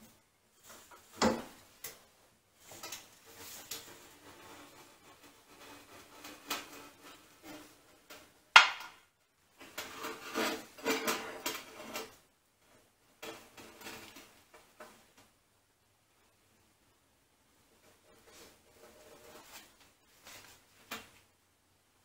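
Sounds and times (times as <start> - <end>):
metal clanking and scraping: 9.6 - 12.2.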